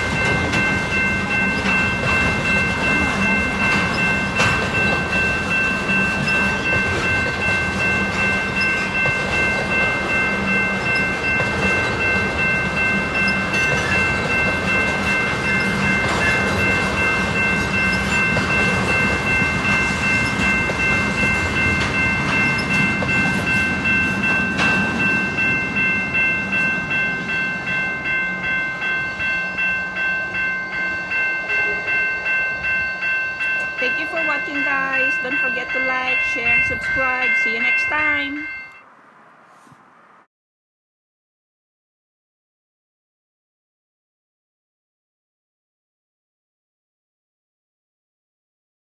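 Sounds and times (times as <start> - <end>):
freight train wheels rumbling: 0.0 - 38.8
level crossing bell ringing: 0.0 - 38.8.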